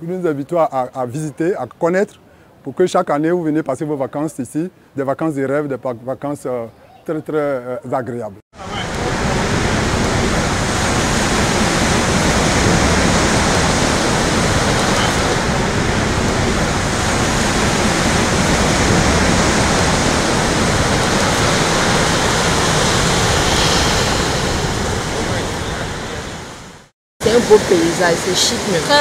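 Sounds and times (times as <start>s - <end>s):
ocean waves breaking: 8.6s - 29.0s.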